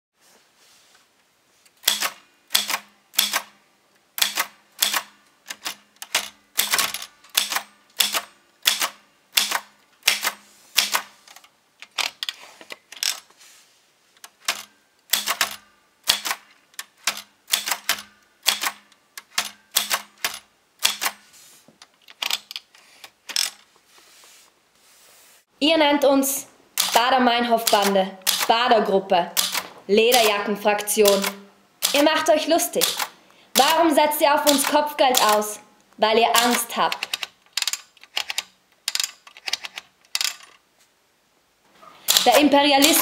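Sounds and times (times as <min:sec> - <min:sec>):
typewriter keys clacking: 0:01.8 - 0:03.5, 0:04.2 - 0:13.2, 0:14.2 - 0:21.2, 0:26.8 - 0:28.5, 0:29.4 - 0:30.4, 0:31.0 - 0:35.6, 0:36.3 - 0:40.6, 0:42.0 - 0:43.0.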